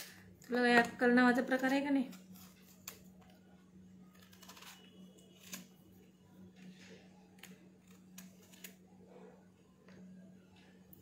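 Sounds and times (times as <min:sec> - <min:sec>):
low steady hum: 0:00.0 - 0:11.0
knife scraping pumpkin rind: 0:01.4 - 0:03.3, 0:04.0 - 0:05.8.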